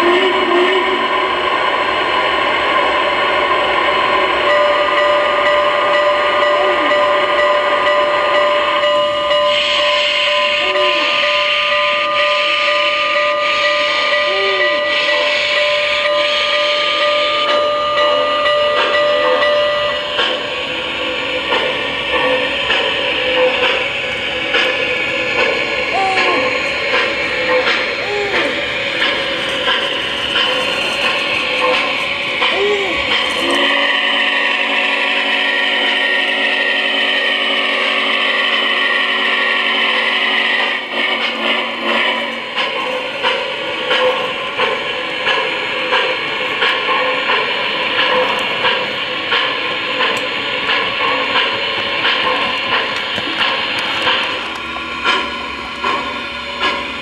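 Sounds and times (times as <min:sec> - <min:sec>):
slow locomotive chuffs: 0:00.0 - 0:57.0
steam locomotive whistle chord: 0:04.2 - 0:20.4, 0:32.8 - 0:42.3
steam hiss: 0:09.4 - 0:57.0.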